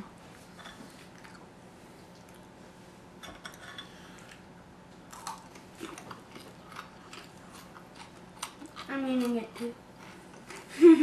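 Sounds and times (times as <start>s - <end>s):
snack crunching: 5.1s - 10.7s.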